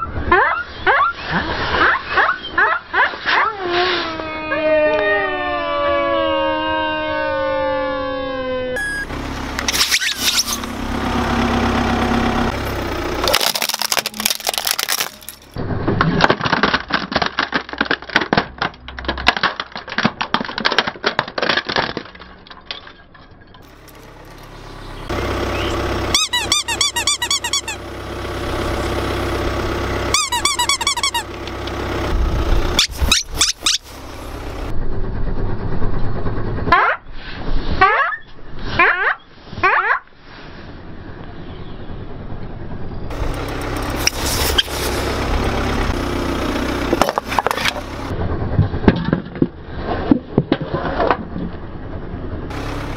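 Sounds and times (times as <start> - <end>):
rubber toys squeaking: 8.8 - 10.8, 12.5 - 15.6, 25.6 - 27.8, 30.1 - 31.4, 32.7 - 33.9, 43.9 - 45.1
plastic toys cracking: 13.2 - 23.1.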